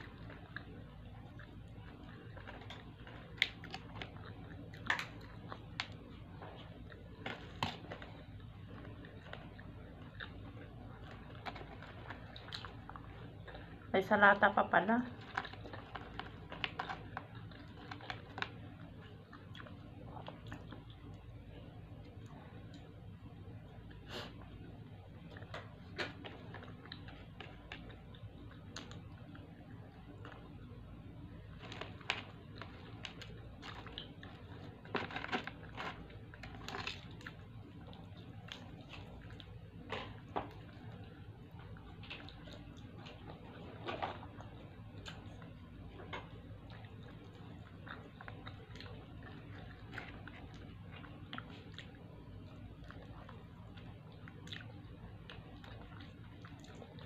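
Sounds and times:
chewing fried chicken: 0:00.0 - 0:57.0
chicken pulled apart and chewed: 0:31.5 - 0:57.0.

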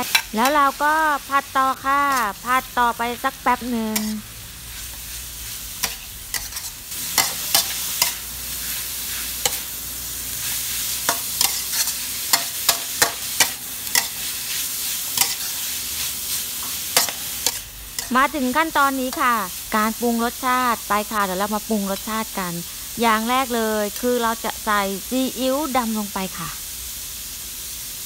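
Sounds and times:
meat sizzling in a wok: 0:00.0 - 0:28.0
metal spatula scraping a wok: 0:01.8 - 0:09.8, 0:10.4 - 0:18.2.

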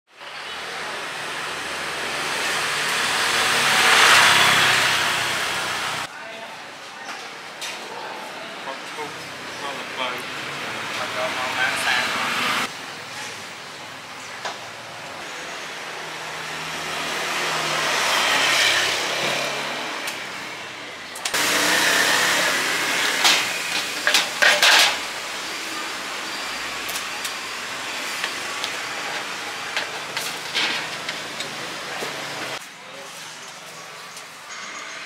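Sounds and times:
vehicle passing: 0:01.8 - 0:06.1, 0:09.7 - 0:12.7
traffic hum: 0:08.5 - 0:34.4
plastic utensils clattering on trays: 0:23.2 - 0:25.0.

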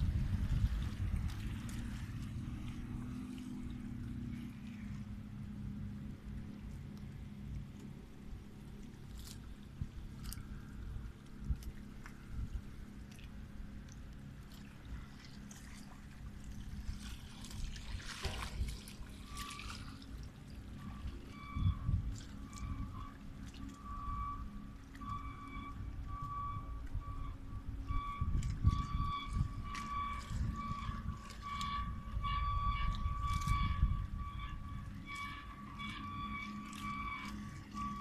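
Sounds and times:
continuous low rumble: 0:00.0 - 0:38.0
water lapping at rocky shore: 0:00.0 - 0:38.0
short electronic beeps: 0:20.8 - 0:23.1, 0:23.7 - 0:38.0.

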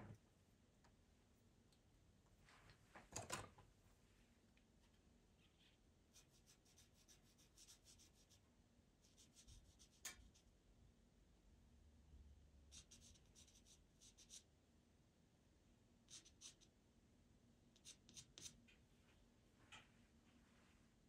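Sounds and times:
pencil scratching on paper: 0:06.1 - 0:08.4, 0:09.0 - 0:10.5, 0:12.7 - 0:14.5, 0:16.1 - 0:16.7, 0:17.8 - 0:18.6.

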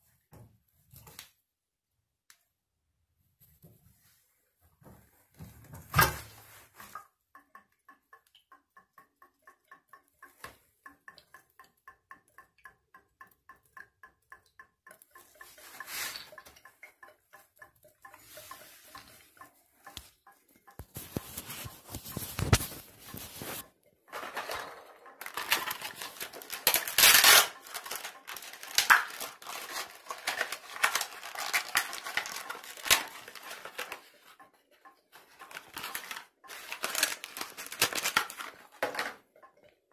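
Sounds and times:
metal clattering and scraping: 0:21.6 - 0:32.0.

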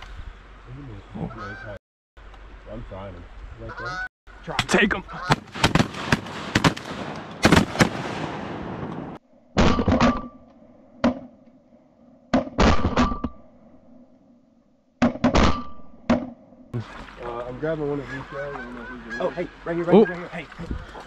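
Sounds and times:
shotgun shots: 0:05.3 - 0:10.3, 0:12.4 - 0:13.2.

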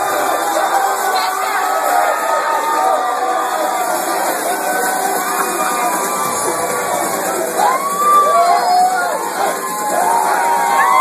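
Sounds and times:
crowd cheering and yelling: 0:00.0 - 0:11.0
long drawn-out shouts: 0:07.4 - 0:11.0.

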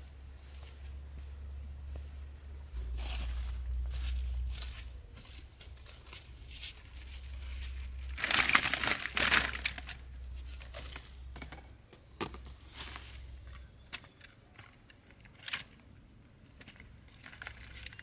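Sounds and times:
rustling and crinkling: 0:02.7 - 0:11.6, 0:12.3 - 0:15.9, 0:16.5 - 0:18.0.

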